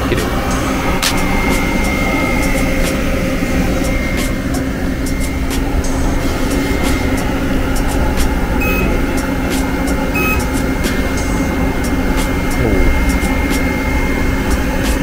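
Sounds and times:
faint high whine: 0:00.0 - 0:11.7
machine hum: 0:00.0 - 0:15.0.

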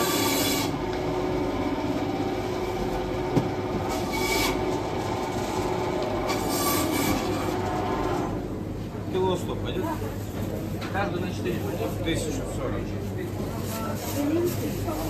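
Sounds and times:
market hall background din: 0:00.0 - 0:15.0.

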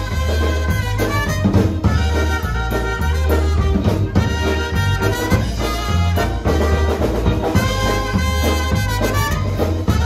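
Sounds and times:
bass: 0:00.0 - 0:10.0
drum kit: 0:00.0 - 0:10.0
trumpet: 0:00.0 - 0:10.0.

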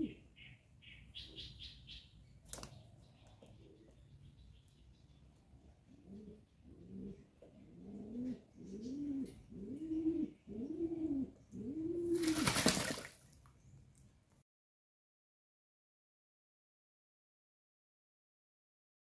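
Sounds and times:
pigeon cooing: 0:00.0 - 0:00.3, 0:05.8 - 0:13.1.

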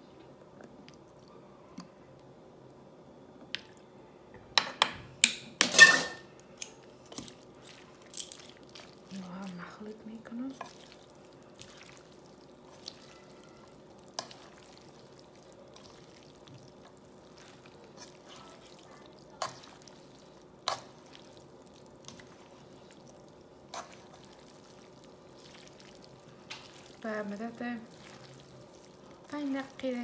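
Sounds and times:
faint sizzle: 0:00.0 - 0:30.0
noodles tossed in frying pan: 0:06.7 - 0:09.6, 0:13.7 - 0:30.0.

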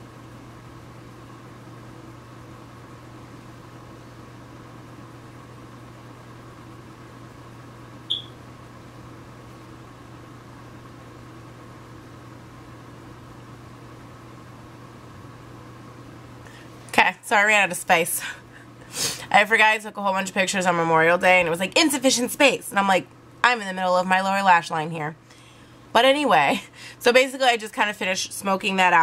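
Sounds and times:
low room hum: 0:00.0 - 0:29.0
high-pitched chirp: 0:08.1 - 0:08.4.

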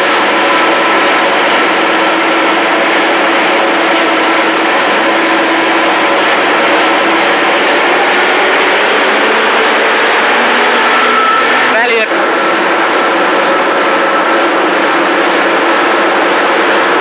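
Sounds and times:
truck diesel engine droning: 0:00.0 - 0:17.0.

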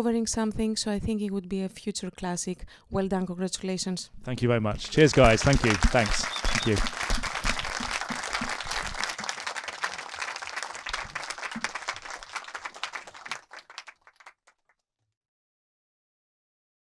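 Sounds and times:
audience applauding: 0:04.8 - 0:14.5.

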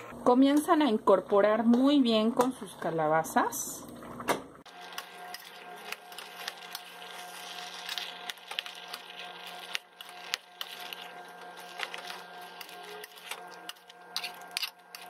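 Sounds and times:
metal spoon scraping a pot: 0:04.9 - 0:15.0.

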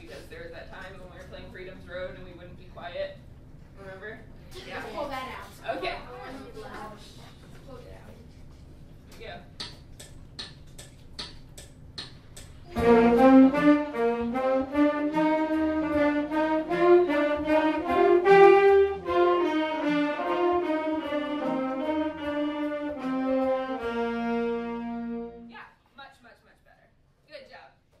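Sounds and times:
saxophones playing: 0:12.6 - 0:25.5.

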